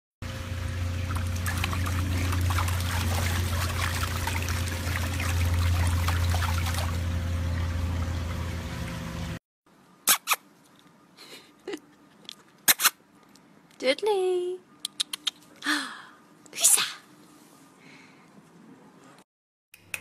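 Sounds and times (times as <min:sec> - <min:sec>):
steady low hum: 0:00.2 - 0:09.4
pool water splashing: 0:00.3 - 0:09.4.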